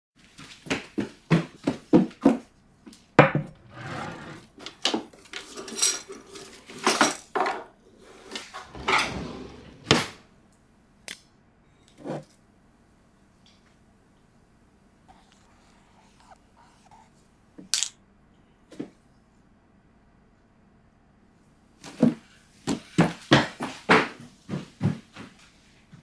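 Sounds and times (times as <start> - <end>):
kitchen drawer opening: 3.6 - 4.8, 8.1 - 10.3
cutlery clattering against dishes: 5.4 - 7.7.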